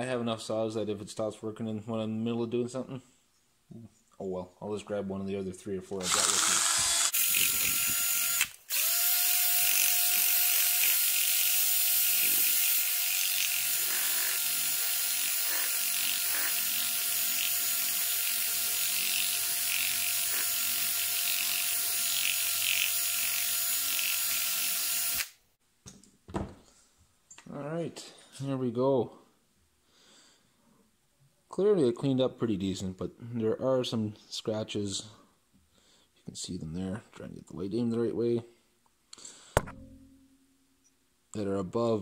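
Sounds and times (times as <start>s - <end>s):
cordless drill whining: 6.0s - 25.4s.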